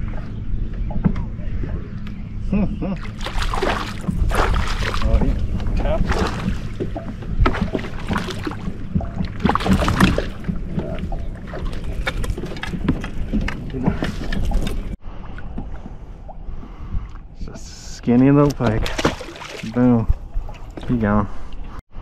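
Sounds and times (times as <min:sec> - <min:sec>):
steady low rumble: 0:00.0 - 0:18.6
water noise: 0:00.0 - 0:21.8.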